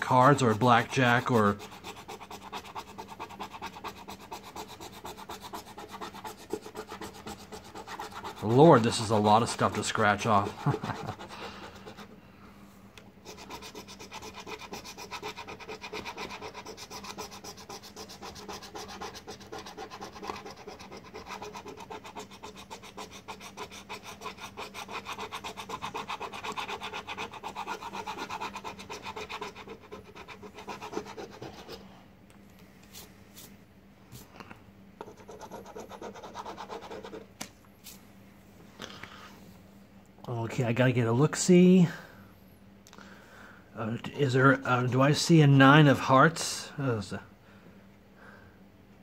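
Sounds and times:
coin scratching lottery ticket: 0:00.0 - 0:12.1, 0:13.2 - 0:31.8, 0:35.0 - 0:37.2.

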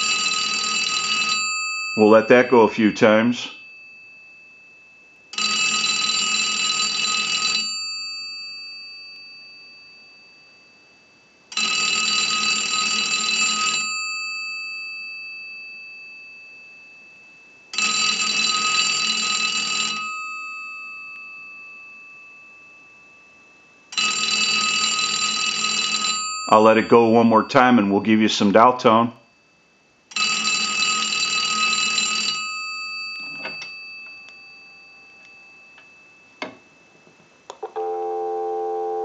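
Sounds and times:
payphone bell ringing: 0:00.0 - 0:04.3, 0:05.3 - 0:10.6, 0:11.5 - 0:15.8, 0:17.7 - 0:22.1, 0:23.9 - 0:27.8, 0:30.2 - 0:35.8, 0:37.6 - 0:39.0.

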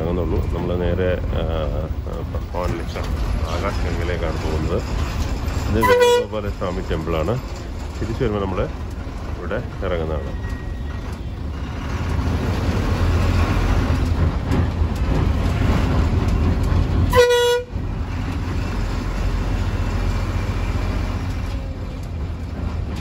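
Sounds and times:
bus engine and road rumble: 0:00.0 - 0:23.0
vehicle horn toot: 0:05.8 - 0:06.3, 0:17.1 - 0:17.7.

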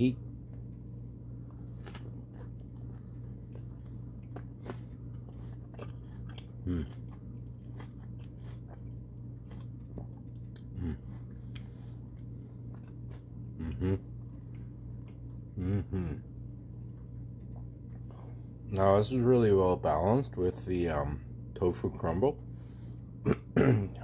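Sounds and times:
steady low hum: 0:00.0 - 0:24.0
man chewing close up: 0:00.5 - 0:15.7, 0:16.4 - 0:18.7.

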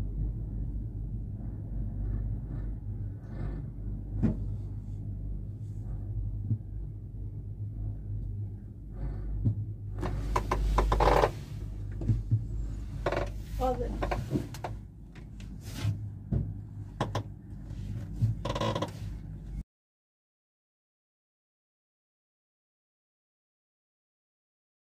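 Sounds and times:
gondola cabin rumble and hum: 0:00.0 - 0:19.6.

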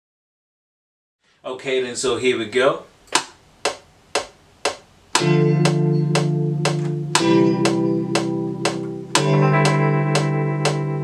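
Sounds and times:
metronome clicks: 0:03.1 - 0:11.0
electric guitar chords: 0:05.1 - 0:11.0.

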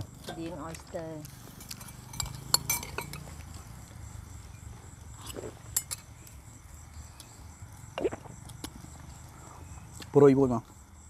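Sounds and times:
bowls and utensils clinking: 0:01.6 - 0:03.4, 0:05.7 - 0:06.1.

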